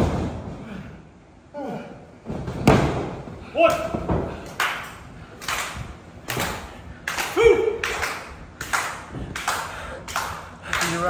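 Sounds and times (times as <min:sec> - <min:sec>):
audience clapping in rhythm: 0:04.5 - 0:11.0.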